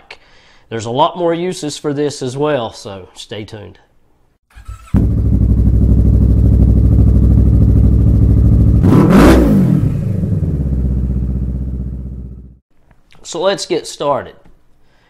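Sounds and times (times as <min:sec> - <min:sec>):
motorcycle engine revving: 0:04.6 - 0:12.6
motorcycle engine running: 0:04.8 - 0:12.6.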